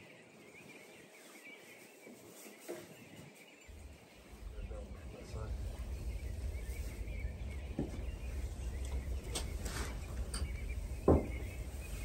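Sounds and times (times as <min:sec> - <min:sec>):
soft rustling of hay: 0:00.0 - 0:12.0
steady low rumble: 0:03.7 - 0:12.0
short thump: 0:11.0 - 0:11.5.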